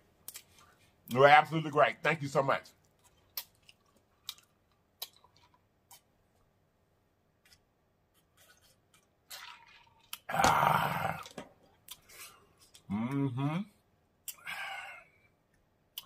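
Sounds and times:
mouth clicks and smacks: 2.9 - 6.1, 14.2 - 14.5.

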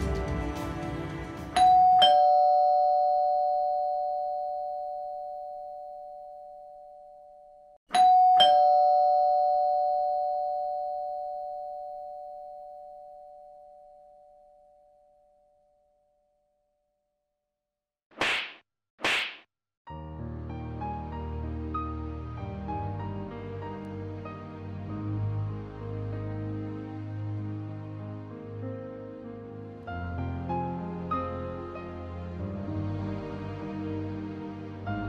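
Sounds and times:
two-note doorbell chime: 1.6 - 15.6.

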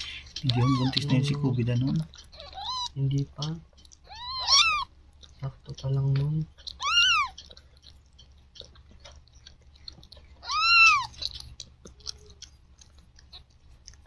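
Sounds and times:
kitten mewing: 0.0 - 4.9, 6.7 - 7.6, 10.4 - 11.4.

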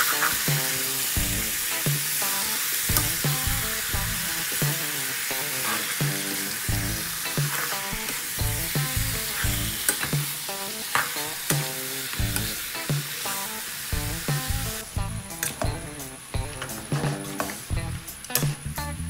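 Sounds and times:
food sizzling in a wok: 0.0 - 18.9
background music with a beat: 0.0 - 19.0
spatula stirring in wok: 4.4 - 13.4.

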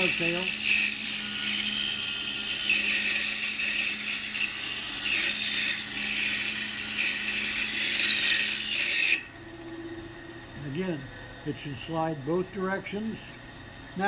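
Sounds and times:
saw blade rasping in wood: 0.0 - 9.3
low motor hum: 9.2 - 14.0.

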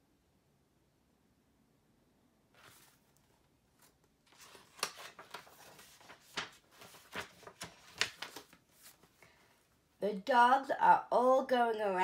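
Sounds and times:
book pages turning: 2.6 - 9.2.

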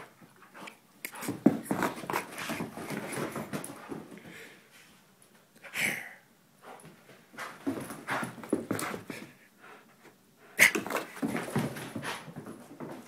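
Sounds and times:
scuffling and knocks: 0.2 - 4.4, 6.8 - 9.4, 10.8 - 13.0.

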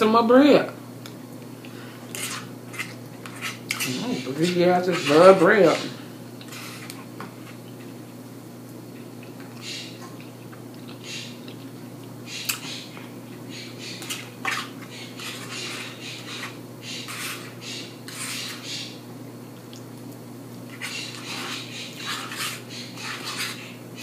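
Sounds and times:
fork scraping and clinking on plate: 14.0 - 18.6, 20.7 - 23.7.

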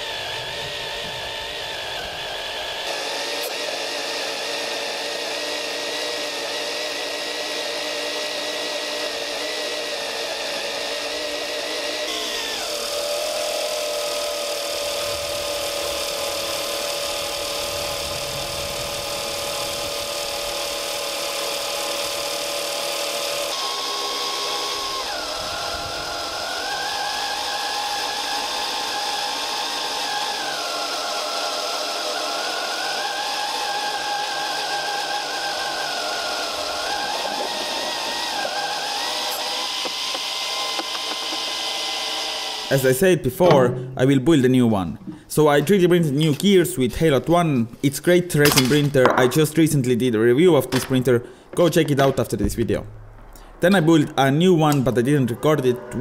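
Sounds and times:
motor whine: 0.0 - 42.8.

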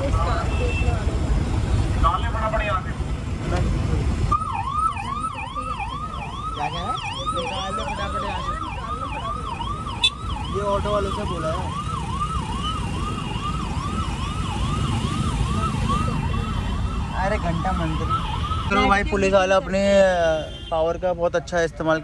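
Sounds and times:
low road rumble: 0.0 - 22.0
police siren yelping: 4.3 - 19.3.

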